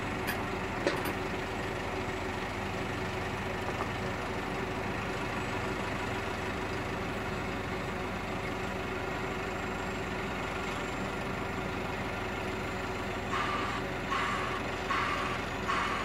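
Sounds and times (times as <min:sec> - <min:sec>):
diesel engine idling: 0:00.0 - 0:16.0
reversing alarm beeping: 0:13.3 - 0:16.0.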